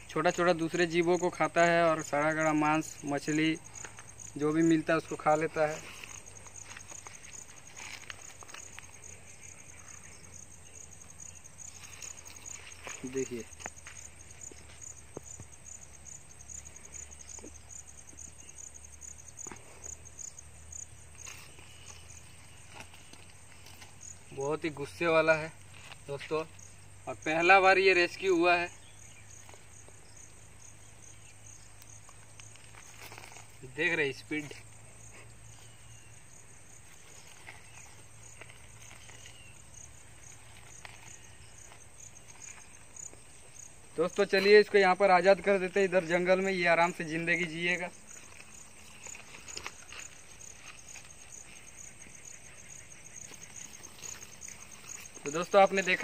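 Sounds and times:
insects chirping: 0.0 - 56.0.

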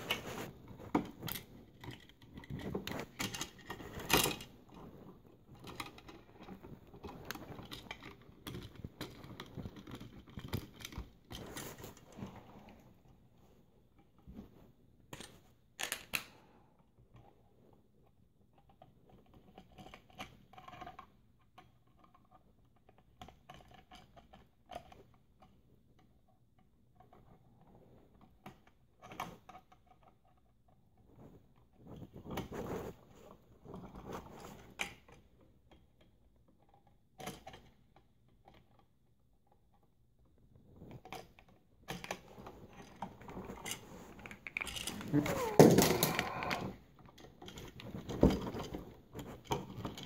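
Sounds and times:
rustling and scraping: 0.0 - 15.7, 27.1 - 35.4, 40.4 - 50.0.

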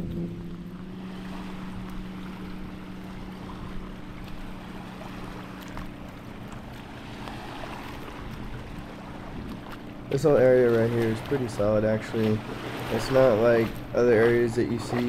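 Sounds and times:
wind on microphone: 0.0 - 4.3, 7.2 - 9.8
steady low hum: 0.0 - 15.0
waves lapping on sandy shore: 0.0 - 15.0.

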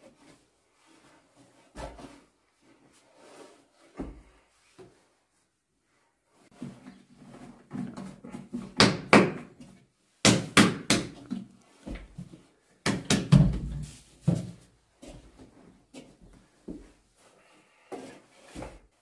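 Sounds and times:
sharp knocks and slaps: 8.6 - 9.6, 10.2 - 11.4, 12.8 - 14.5.

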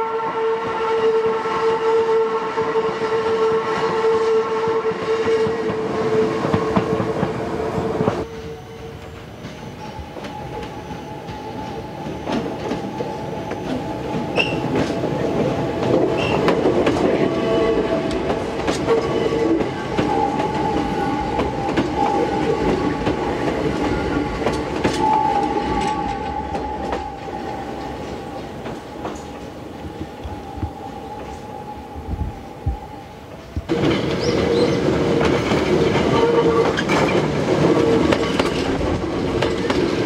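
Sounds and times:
high wheel squeal: 8.2 - 15.2
train wheels clicking over rail joints: 9.0 - 30.5, 33.3 - 40.0.

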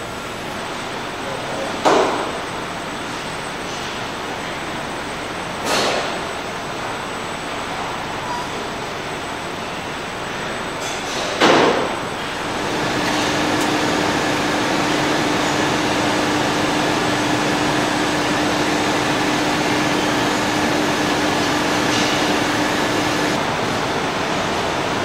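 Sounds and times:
steady hum: 12.0 - 23.7
ventilation air rushing: 12.1 - 23.8.

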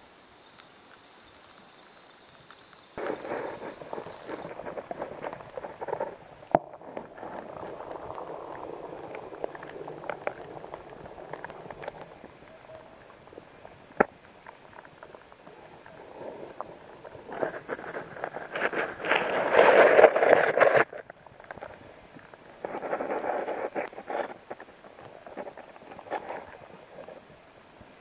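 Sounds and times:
small underwater crackles: 0.4 - 28.0
bubbling gurgling water: 3.0 - 20.4.

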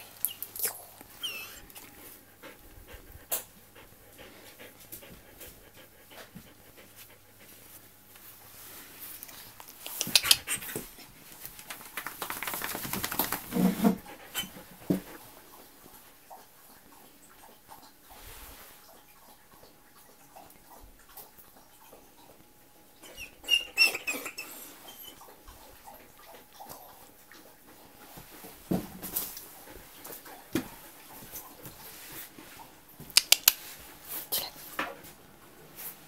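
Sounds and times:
dog panting: 1.1 - 11.1, 11.8 - 17.0.

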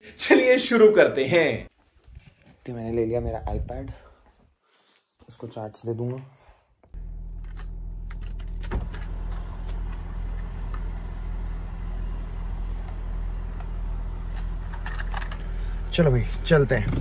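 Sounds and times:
car engine idling: 7.0 - 17.0
handling clicks and rustles: 12.4 - 15.6.

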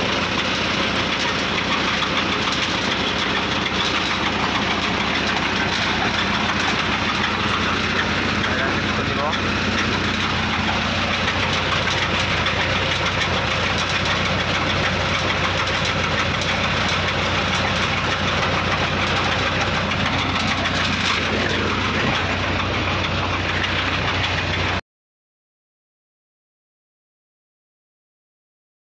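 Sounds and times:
drilling rig engine humming: 0.0 - 24.8.

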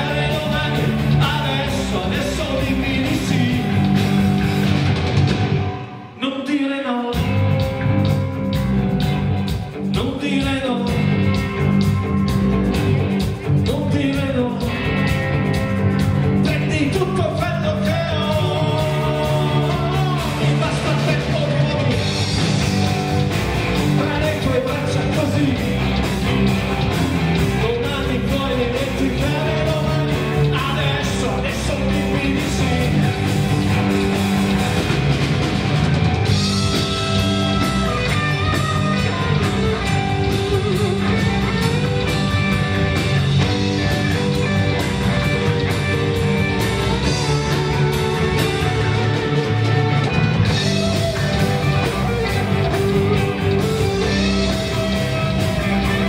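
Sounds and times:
lead vocal singing: 0.0 - 4.4, 5.8 - 7.5, 9.9 - 11.2, 16.4 - 22.4, 23.9 - 26.0, 27.4 - 34.0
bass guitar: 0.0 - 6.2, 7.1 - 56.0
drum kit: 0.0 - 6.2, 7.1 - 56.0
electric guitars: 0.0 - 6.3, 7.1 - 56.0.

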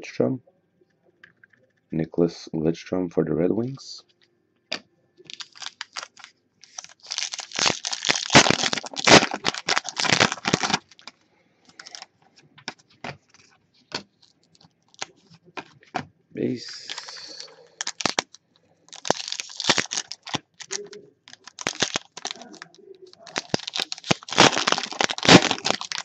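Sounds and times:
plastic wrapper crinkling: 5.3 - 12.1, 12.7 - 16.0, 16.6 - 26.0.

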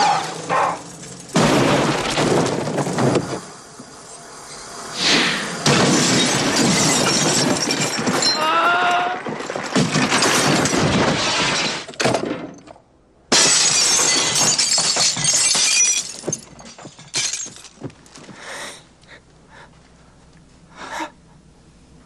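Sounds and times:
falling debris crashes: 0.0 - 4.0, 5.4 - 18.3
glass shattering crash: 1.2 - 3.4, 5.5 - 8.6, 9.2 - 12.6, 13.3 - 17.9.

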